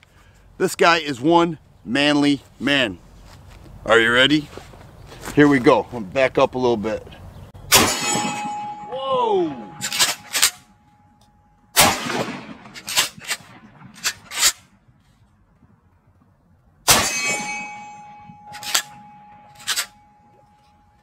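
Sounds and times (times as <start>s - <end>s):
shotgun shots: 7.7s - 8.9s, 11.8s - 14.7s, 16.8s - 19.9s
metallic ringing: 7.7s - 11.8s, 16.9s - 21.0s.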